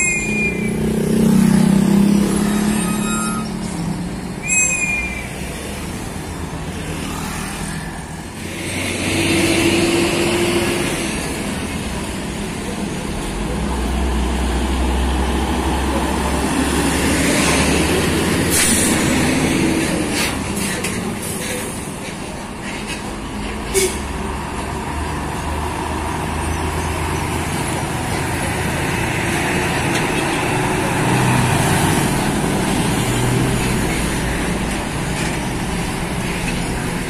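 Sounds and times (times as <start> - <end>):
brake squeal: 0.0 - 6.0
diesel truck engines rumbling: 0.0 - 37.0.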